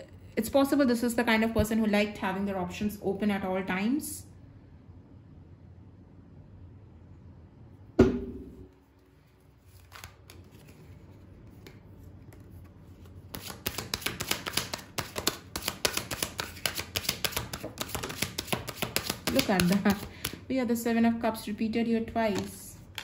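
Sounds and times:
sharp knock: 8.0 - 8.7
cards being shuffled: 8.9 - 20.4, 22.2 - 23.0.

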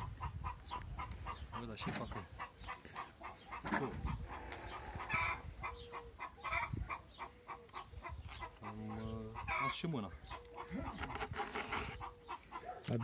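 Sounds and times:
animal calls: 0.0 - 13.0.

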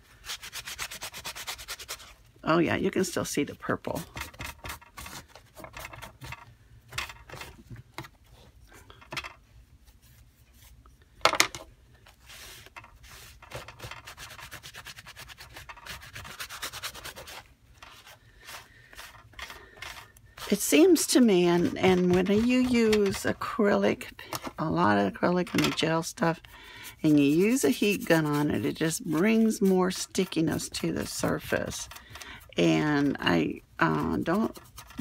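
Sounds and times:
wipe scrubbing wet paper: 26.2 - 31.9.

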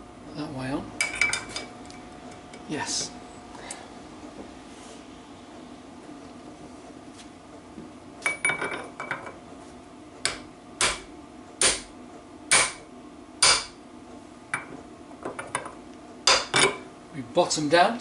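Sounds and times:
hammer striking metal: 10.3 - 11.9, 12.5 - 12.8, 13.4 - 13.8, 16.3 - 16.8.

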